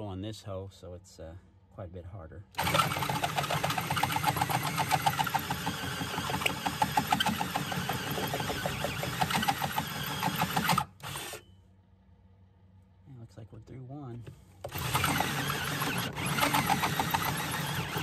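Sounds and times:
cordless drill cutting steel: 0:02.6 - 0:11.4, 0:14.7 - 0:18.0.

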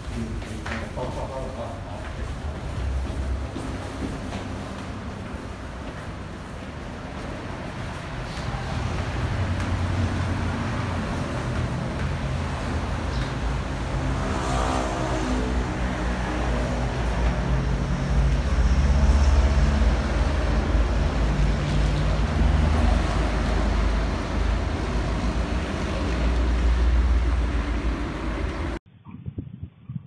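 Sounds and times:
vehicle engine rumbling: 0:01.3 - 0:28.8.

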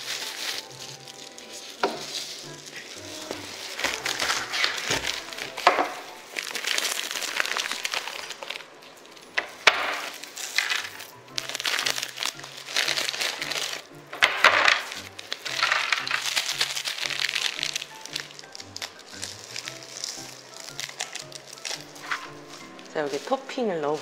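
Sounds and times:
background music: 0:00.0 - 0:24.0
plastic packet crinkling: 0:00.0 - 0:24.0.

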